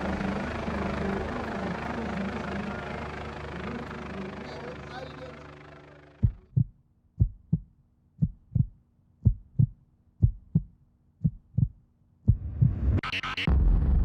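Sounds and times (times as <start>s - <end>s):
heartbeat thumps: 6.2s - 13.0s.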